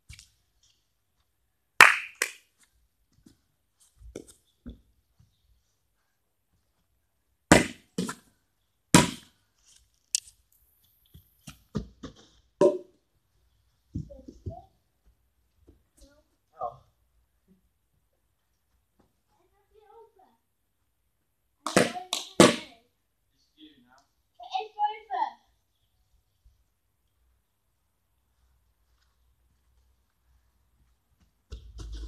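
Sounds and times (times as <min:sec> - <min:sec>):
plastic bat hitting ball: 0:07.5 - 0:08.2, 0:09.0 - 0:09.3, 0:21.7 - 0:22.7.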